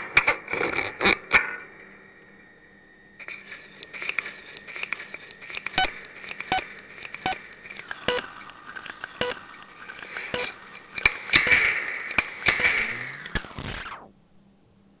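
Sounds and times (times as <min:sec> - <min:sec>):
steady electronic tone: 0:01.6 - 0:14.5
crackling scraping bursts: 0:03.2 - 0:14.1
pitched electronic blips: 0:05.6 - 0:14.1.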